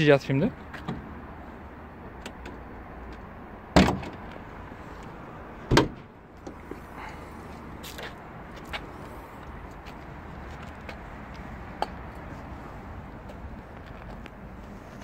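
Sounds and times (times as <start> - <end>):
car bonnet latch clunks: 5.7 - 6.6.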